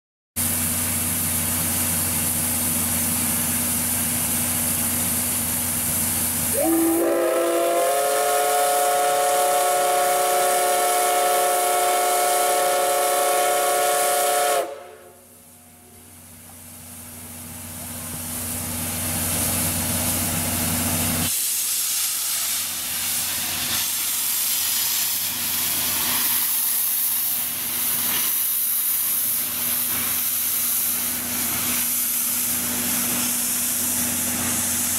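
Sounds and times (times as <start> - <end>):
steam hiss: 0.4 - 34.9
steam whistle blast: 6.5 - 16.0.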